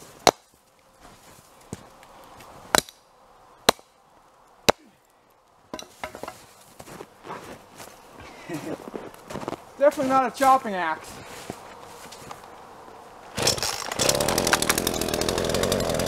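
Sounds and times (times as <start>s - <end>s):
axe splitting firewood: 0.0s - 0.7s, 1.6s - 3.0s, 3.6s - 3.9s, 4.6s - 5.0s, 5.7s - 6.6s, 13.3s - 16.0s
boots crunching in snow: 0.0s - 2.6s, 5.9s - 12.6s.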